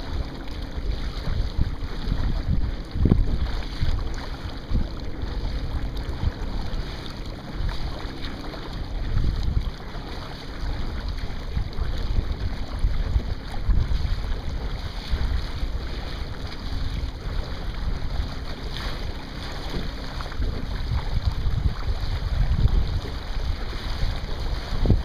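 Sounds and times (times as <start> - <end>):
water splashing along hull: 0.0 - 25.0
wind buffeting microphone: 0.0 - 25.0.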